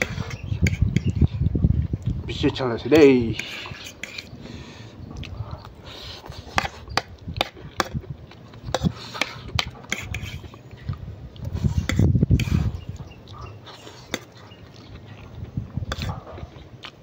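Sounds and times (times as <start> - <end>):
fork scraping a plate: 0.0 - 1.4, 3.2 - 4.4, 5.7 - 8.0, 8.6 - 10.7, 11.5 - 14.7, 15.9 - 16.3
chewing: 3.3 - 17.0.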